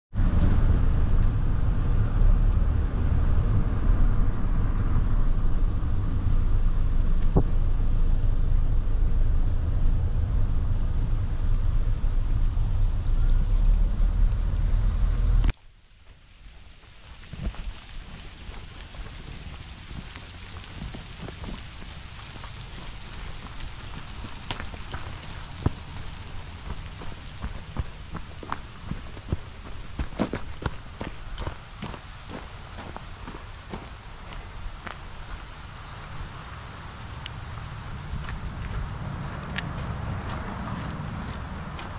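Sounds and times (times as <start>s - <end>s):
low rumble: 0.1s - 41.9s
rain falling: 0.1s - 41.9s
road and tyre noise in car: 0.1s - 41.9s
footsteps on wet muddy ground: 15.2s - 36.4s, 37.2s - 41.9s.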